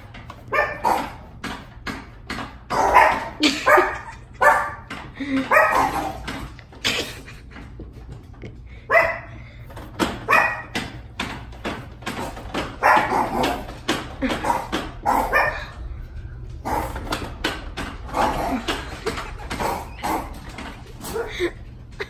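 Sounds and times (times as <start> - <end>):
dog barking: 0.5 - 1.3, 2.7 - 4.9, 5.5 - 6.2, 8.9 - 9.3, 10.3 - 10.8, 12.8 - 13.6, 14.4 - 15.8.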